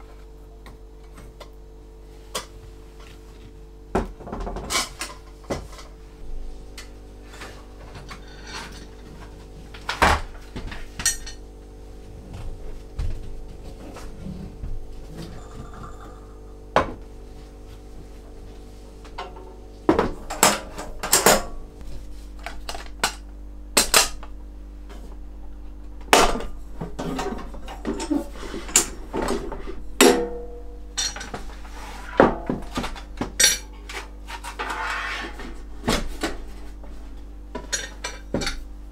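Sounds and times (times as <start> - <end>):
faint steady hum: 0.0 - 38.9
metal cookware clinking on wood: 31.0 - 31.3.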